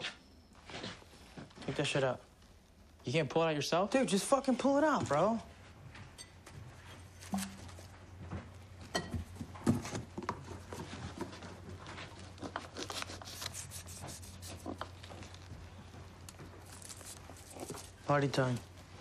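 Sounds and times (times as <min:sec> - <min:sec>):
cardboard scraping and tearing: 0:12.3 - 0:15.0.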